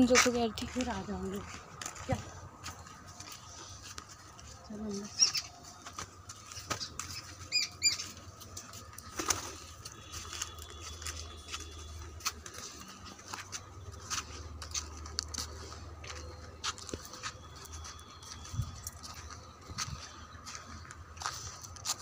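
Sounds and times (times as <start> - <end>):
footsteps on brick path: 0.0 - 22.0
bird chirps: 6.5 - 8.2.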